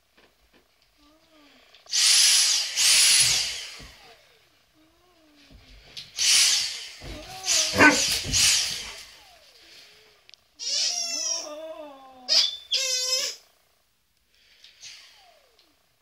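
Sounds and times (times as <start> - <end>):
dogs grumbling: 7.0 - 9.1
dogs howling: 7.1 - 8.4.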